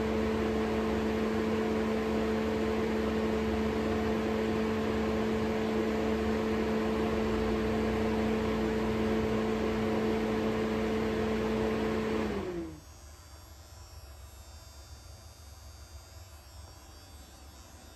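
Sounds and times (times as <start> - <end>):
exhaust fan whoosh and hum: 2.2 - 12.8.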